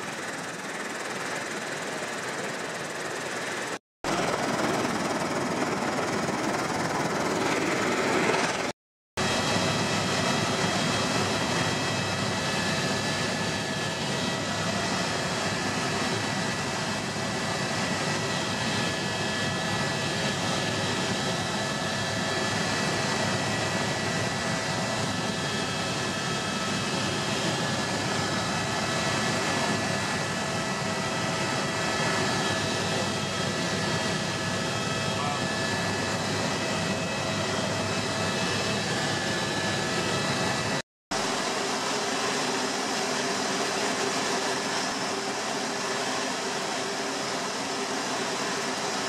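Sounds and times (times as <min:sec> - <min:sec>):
helicopter engine and rotor drone: 0:00.0 - 0:49.0.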